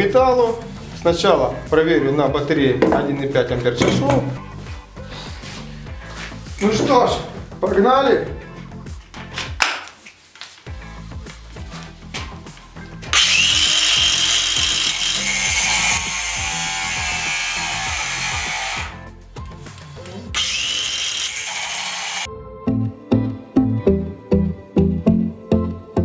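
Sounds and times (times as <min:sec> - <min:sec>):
background music with a beat: 0:00.2 - 0:20.4, 0:22.2 - 0:26.0
angle grinder cutting steel rod: 0:13.1 - 0:19.0, 0:20.4 - 0:22.3.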